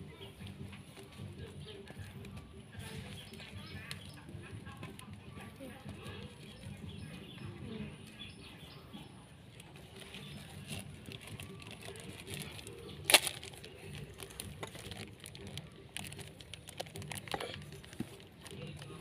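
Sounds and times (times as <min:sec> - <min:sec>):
plastic wrap crinkling: 0:09.6 - 0:19.0.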